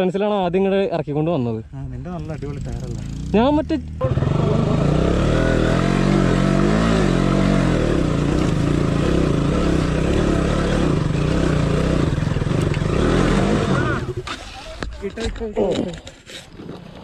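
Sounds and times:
motorcycle engine revving: 2.0s - 14.3s.

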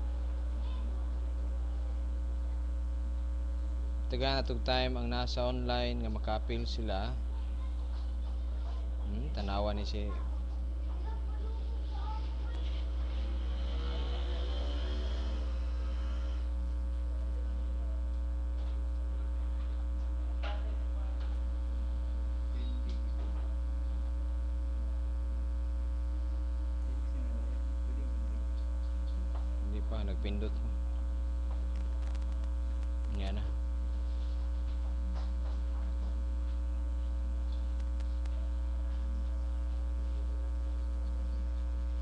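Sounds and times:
electrical mains hum: 0.0s - 42.0s
small clicks: 31.7s - 33.2s.

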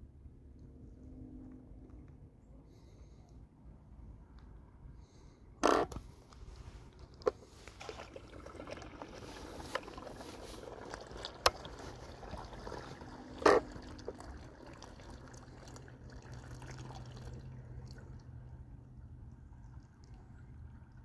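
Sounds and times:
water lapping at lake edge: 7.4s - 21.0s.

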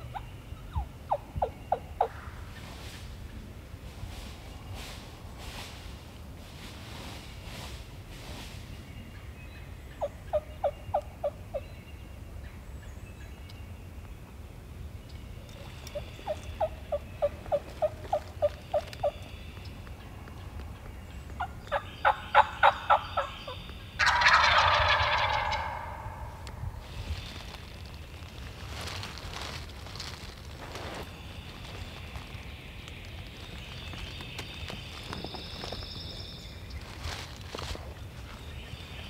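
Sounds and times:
turkey gobbling: 21.4s - 26.4s
turkey yelps: 24.0s - 26.3s.

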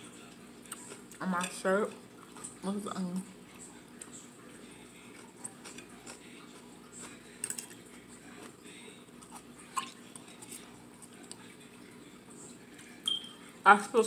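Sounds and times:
faint steady hum: 0.0s - 14.0s
chewing and mouth noises: 0.2s - 1.2s, 3.5s - 13.2s.

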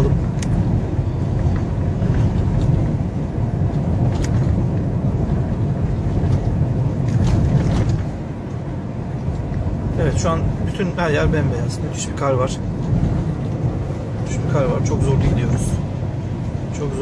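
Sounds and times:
car engine and tyre noise: 0.0s - 17.0s.

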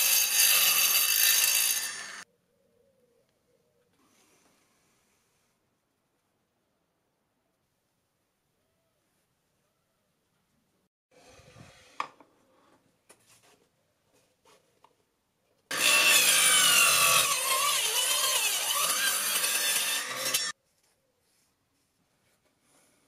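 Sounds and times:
angle grinder cutting wood: 0.0s - 2.2s, 15.7s - 20.6s.

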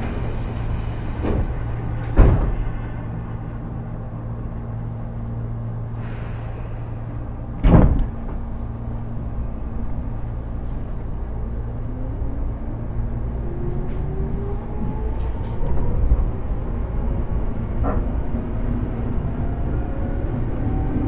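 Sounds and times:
air hissing: 0.0s - 2.1s
sliding doors thumping: 0.0s - 2.8s, 7.6s - 8.6s
train equipment hum: 0.0s - 21.0s.

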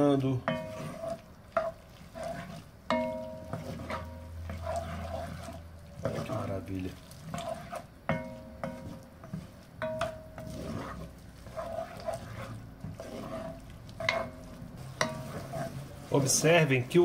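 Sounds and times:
low sizzle: 0.0s - 17.0s
wooden spoon stirring in pot: 0.0s - 17.0s
spoon knocking against pot: 8.1s - 9.0s, 9.8s - 10.4s.

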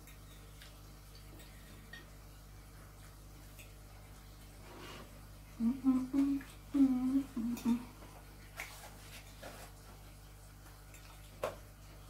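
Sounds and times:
woman humming while chewing: 5.5s - 8.2s.

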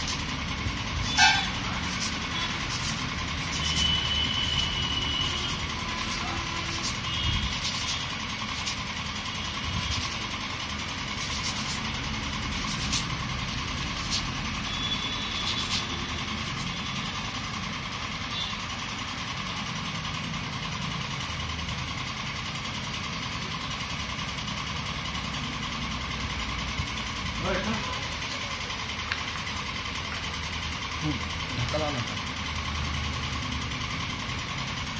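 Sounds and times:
foam rubbed on sandpaper: 0.0s - 0.3s, 1.0s - 8.9s, 9.6s - 10.3s, 11.1s - 13.2s, 13.8s - 14.4s, 15.2s - 16.8s
road traffic rumble: 0.0s - 34.9s.

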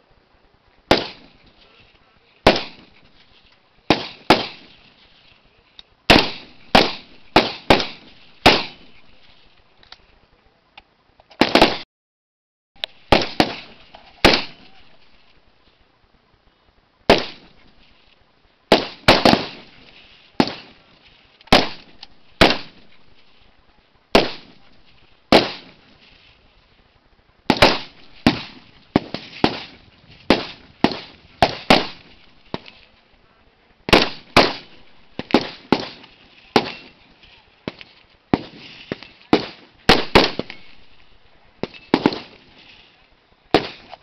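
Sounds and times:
rifle shots with echo: 0.9s - 1.5s, 2.4s - 2.9s, 3.9s - 4.8s, 6.1s - 9.1s, 13.1s - 15.1s, 17.1s - 17.7s, 18.7s - 20.8s, 21.5s - 23.1s, 24.2s - 25.8s, 27.5s - 32.8s, 33.9s - 36.0s, 36.6s - 37.0s, 38.4s - 42.4s, 43.5s - 43.9s.

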